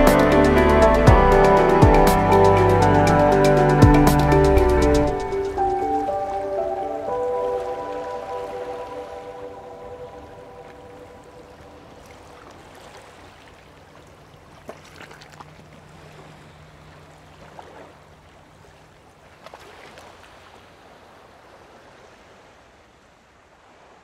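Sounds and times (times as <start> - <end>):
steady low hum: 0.0 - 7.2
water lapping and splashing: 3.3 - 24.0.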